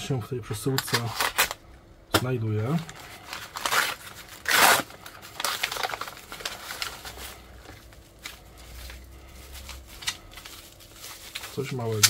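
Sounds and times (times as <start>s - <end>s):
paper crinkling: 2.7s - 12.0s
paper envelope ripping: 2.9s - 12.0s.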